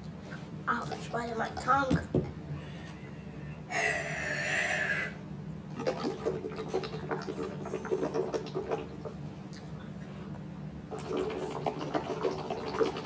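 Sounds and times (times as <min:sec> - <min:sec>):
wet gurgles and clicks: 0:05.7 - 0:09.8, 0:10.9 - 0:13.0
slurping through a straw: 0:05.8 - 0:09.0, 0:10.9 - 0:13.0.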